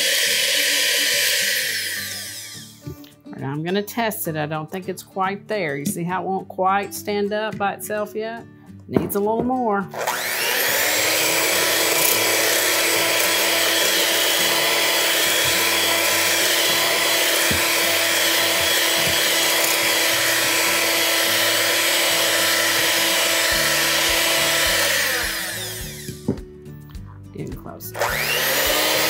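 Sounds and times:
electric hand mixer whipping cream: 0.0 - 2.9, 9.9 - 26.3, 28.0 - 29.0.

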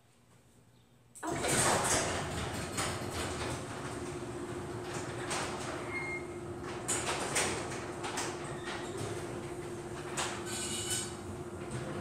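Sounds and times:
garage door motor hum: 1.2 - 12.0
garage door panels clanking: 1.2 - 12.0
garage door rattling: 1.2 - 12.0.

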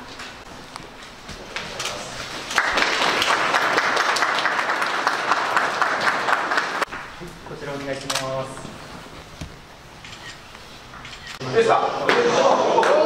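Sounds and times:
people applauding: 1.8 - 7.1, 12.1 - 13.0.

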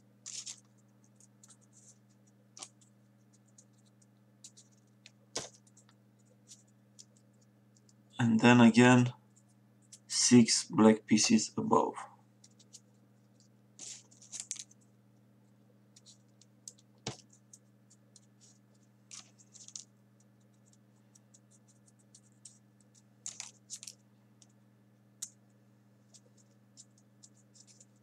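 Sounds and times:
low steady hum: 0.0 - 28.0
paper crackling and clicking: 0.2 - 8.0, 12.4 - 14.8, 15.9 - 24.6, 26.1 - 28.0.

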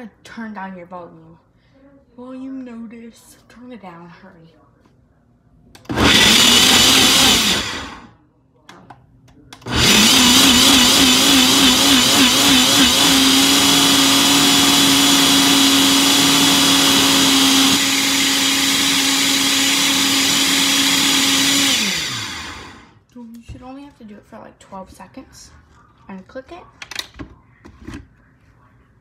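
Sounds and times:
blender motor running: 5.9 - 8.1, 9.6 - 22.9.

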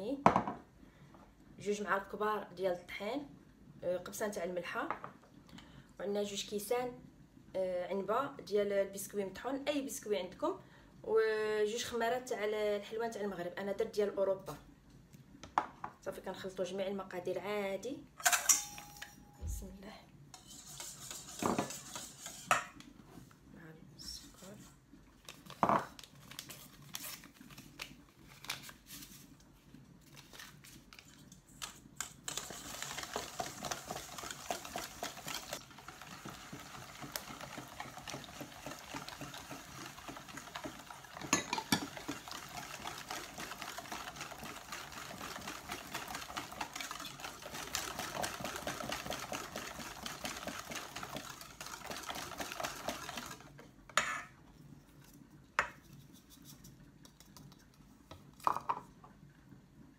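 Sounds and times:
wire whisk clattering in metal bowl: 31.6 - 53.4.

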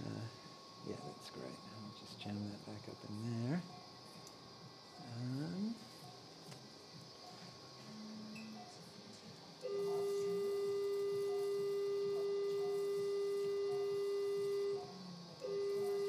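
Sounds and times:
steady beep tone: 9.6 - 16.0.

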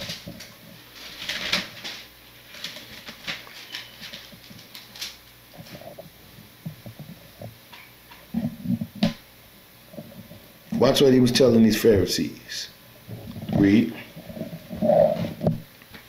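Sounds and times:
thin pages rustling: 0.0 - 6.1.

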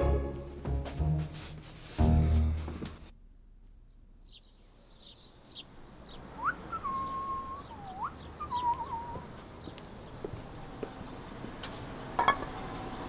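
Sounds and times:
small birds chirping: 3.8 - 11.3
whistled notes: 6.4 - 9.3.

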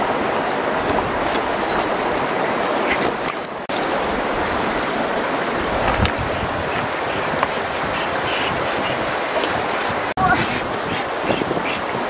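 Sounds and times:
river rushing over stones: 0.0 - 12.0.

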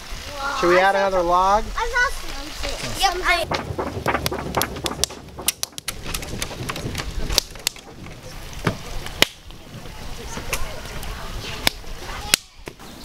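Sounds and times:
campfire crackling: 0.0 - 12.7
fire popping: 2.2 - 12.6.

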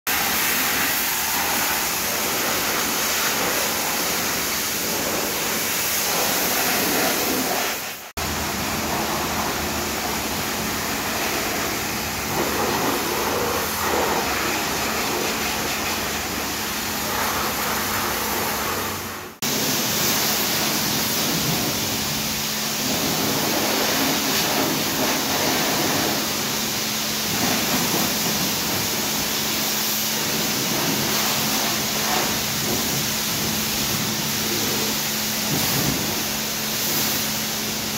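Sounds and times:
pressure washer spraying water: 0.1 - 37.9.

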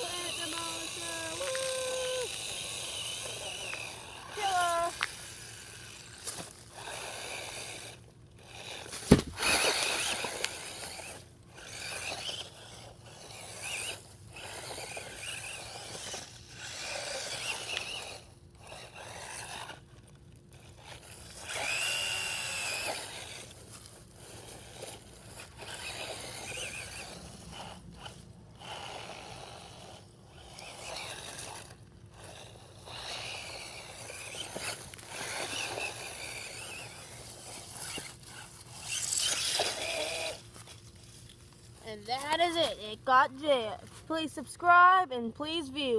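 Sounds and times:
electric motor whine: 0.0 - 42.4
tyres scraping through dirt: 0.0 - 44.8.

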